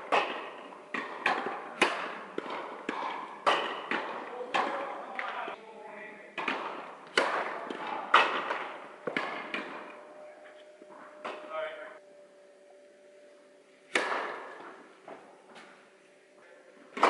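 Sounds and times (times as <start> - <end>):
tennis ball struck by rackets: 0.0 - 5.4, 6.4 - 10.0, 13.9 - 15.8
ball bouncing on court: 0.1 - 5.4.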